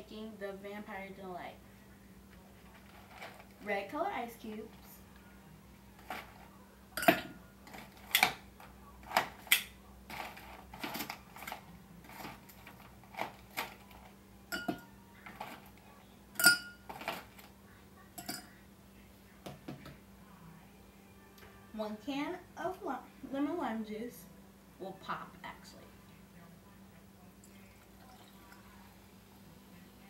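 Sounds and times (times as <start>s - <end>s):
ice clinking against glass: 7.0s - 7.3s, 14.5s - 14.9s, 16.4s - 17.2s.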